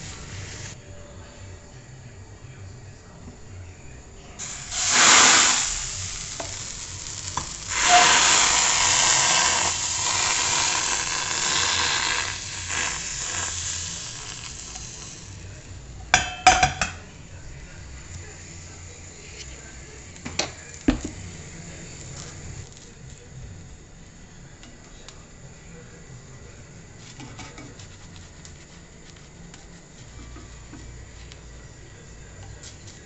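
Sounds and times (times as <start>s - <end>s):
batter sizzling in frying pan: 0.0s - 0.8s, 4.4s - 16.8s.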